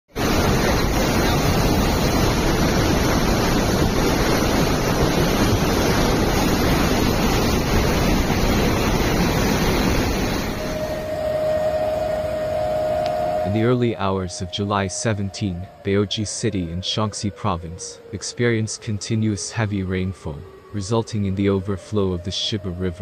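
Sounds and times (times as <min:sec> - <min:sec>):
river rushing: 0:00.1 - 0:13.8.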